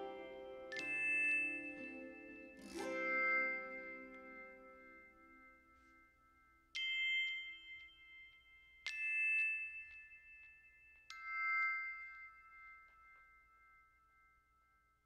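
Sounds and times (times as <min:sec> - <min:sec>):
ringing bell-like chimes: 0:00.0 - 0:15.0.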